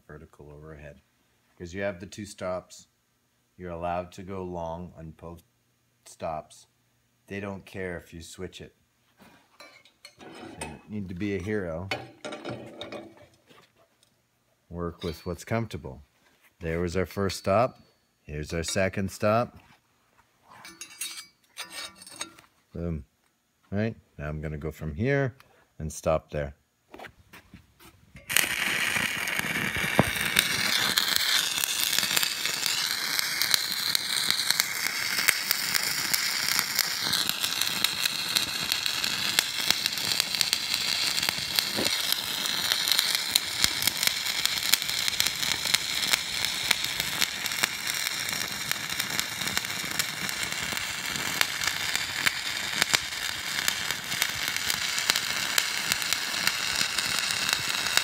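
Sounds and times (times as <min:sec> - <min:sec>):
welding arc crackling and popping: 0:28.2 - 0:58.0.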